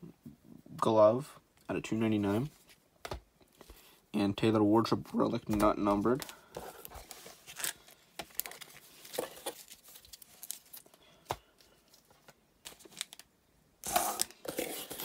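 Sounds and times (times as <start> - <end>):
foil packs crinkling: 6.1 - 11.0, 11.6 - 13.3.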